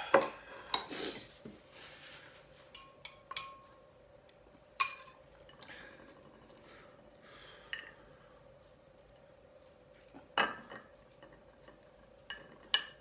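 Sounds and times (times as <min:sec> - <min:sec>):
faint steady hum: 0:00.0 - 0:13.0
metal spoon clinking against glass: 0:02.8 - 0:03.7, 0:04.8 - 0:05.2.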